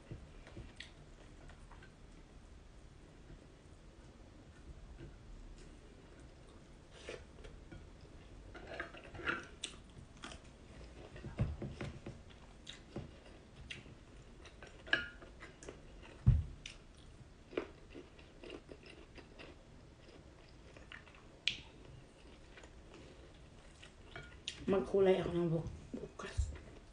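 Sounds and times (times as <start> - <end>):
person chewing food: 5.6 - 24.6.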